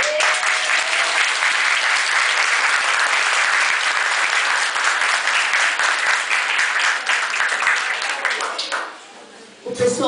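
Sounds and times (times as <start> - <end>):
crowd applauding: 0.0 - 9.0.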